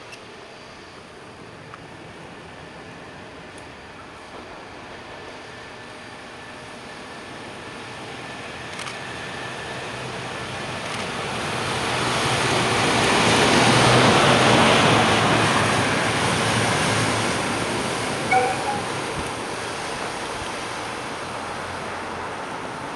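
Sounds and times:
train wheels on rails: 0:10.2 - 0:22.9
brief high-pitched sound: 0:18.3 - 0:19.0.

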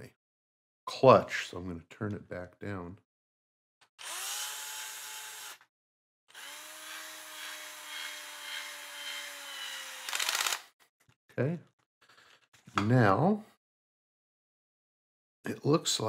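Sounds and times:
cordless screwdriver motor whine: 0:04.0 - 0:05.7, 0:06.3 - 0:10.7.

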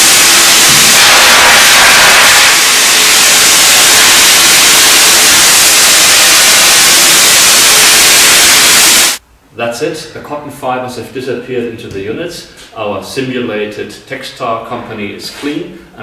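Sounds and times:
vacuum cleaner air rushing: 0:00.0 - 0:09.2.

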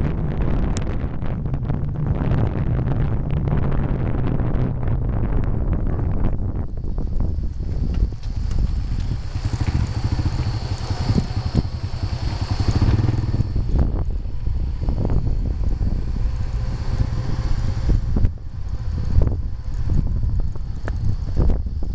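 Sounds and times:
wind buffeting microphone: 0:00.0 - 0:21.9
vehicle engine running: 0:07.0 - 0:21.9.

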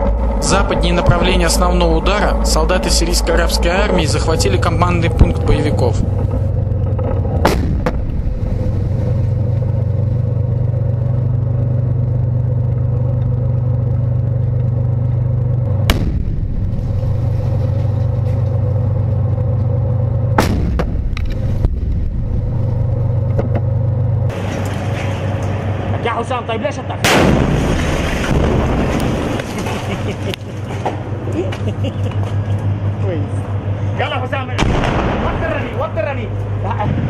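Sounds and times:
tank engine rumbling: 0:00.0 - 0:37.0
sharp cracks: 0:06.8 - 0:09.6, 0:15.7 - 0:18.2, 0:27.0 - 0:30.5.

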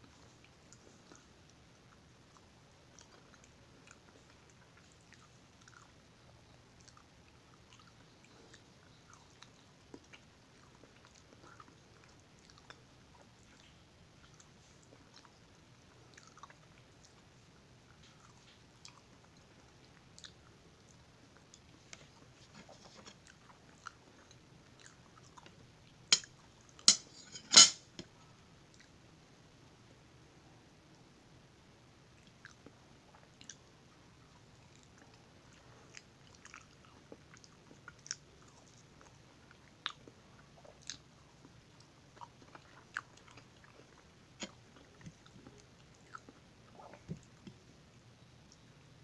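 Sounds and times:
faint chewing: 0:00.0 - 0:29.0, 0:32.2 - 0:49.0
metal spoon scraping a plate: 0:26.9 - 0:27.8
wet chewing: 0:34.6 - 0:47.6.

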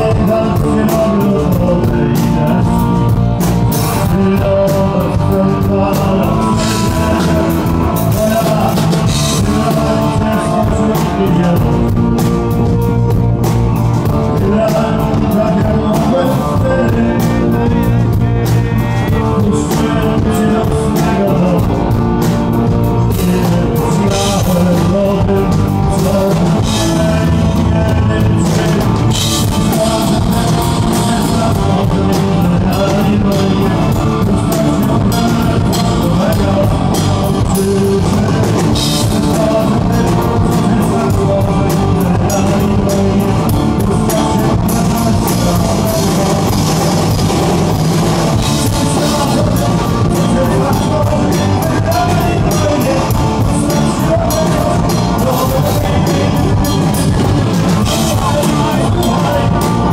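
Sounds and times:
drum kit: 0:00.0 - 0:59.9
electric guitars: 0:00.0 - 0:59.9
person singing: 0:00.0 - 0:59.9.

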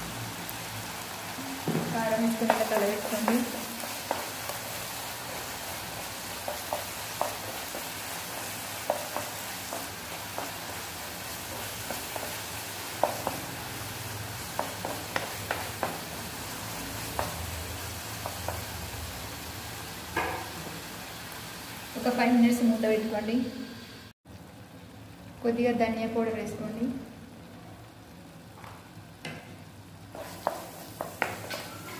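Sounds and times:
sauce sizzling in a frying pan: 0:00.0 - 0:31.9
spatula scraping pan: 0:30.1 - 0:31.9.

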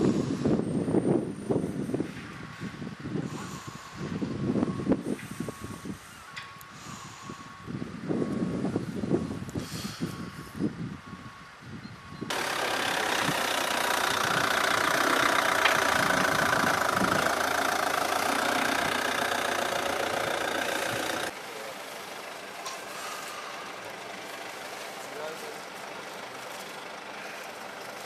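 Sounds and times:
engine idling: 0:12.3 - 0:28.0.

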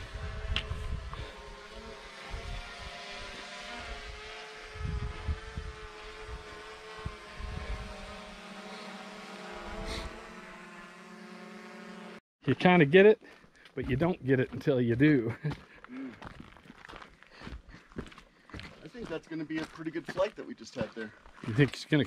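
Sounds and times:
drone propeller whine: 0:00.0 - 0:12.2.

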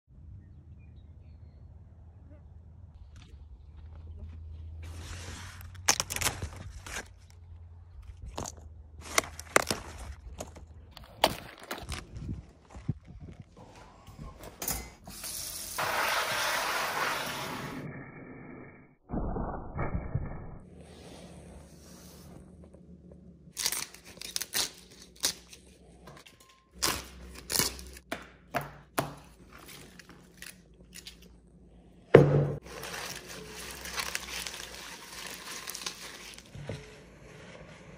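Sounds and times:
sharp crunches and scrapes: 0:03.0 - 0:13.6
leaves ripping off stems: 0:05.0 - 0:07.4, 0:08.3 - 0:12.3, 0:23.5 - 0:25.7, 0:26.8 - 0:28.0, 0:32.6 - 0:36.5
wind rumble on microphone: 0:11.9 - 0:14.4.

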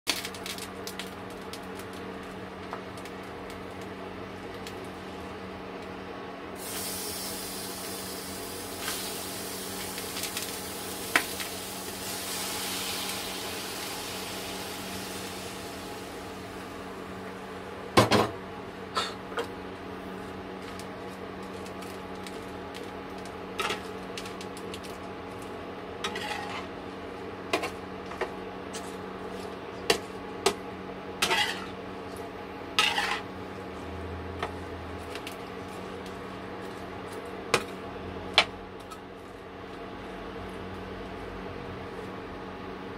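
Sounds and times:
steady hum: 0:00.6 - 0:42.9
shrimp sizzling in hot oil: 0:06.6 - 0:17.1, 0:20.6 - 0:26.8, 0:31.2 - 0:31.8, 0:32.7 - 0:33.4.

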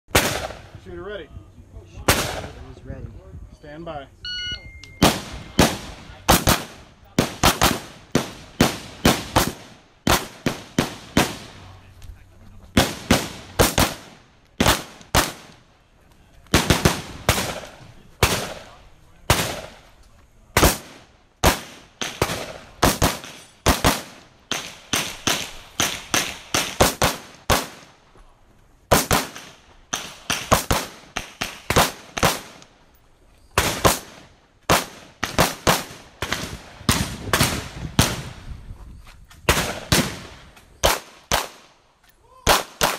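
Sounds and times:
rapid gunfire: 0:05.0 - 0:11.6, 0:12.8 - 0:15.5, 0:16.5 - 0:19.8, 0:20.6 - 0:27.9, 0:28.9 - 0:32.6.

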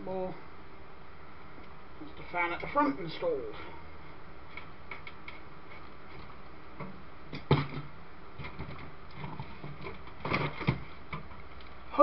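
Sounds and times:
hands handling wires clicking: 0:04.5 - 0:11.8.

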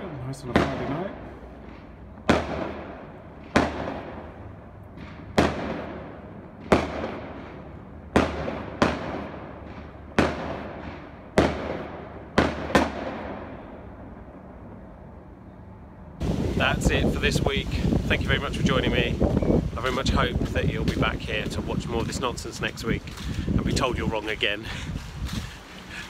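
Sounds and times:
fireworks bangs with echo: 0:00.0 - 0:14.0, 0:19.8 - 0:24.5.

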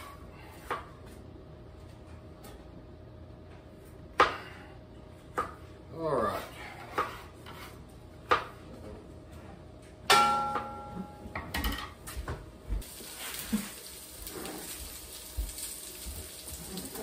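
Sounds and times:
metal pan clanging: 0:10.1 - 0:12.0
skillet sizzling: 0:12.8 - 0:17.0.

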